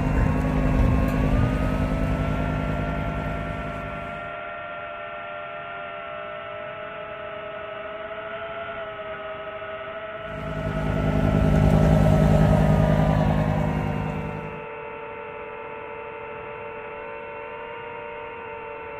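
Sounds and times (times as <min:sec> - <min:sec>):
drone propellers whining: 0:00.0 - 0:04.3, 0:10.3 - 0:14.7
low rumble: 0:00.0 - 0:04.3, 0:10.3 - 0:14.6.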